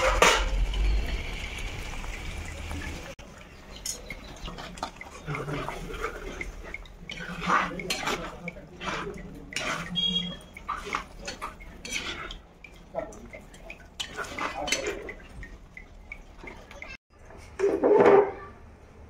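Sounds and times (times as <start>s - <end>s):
metal spatula scraping clay pot: 3.8s - 15.6s.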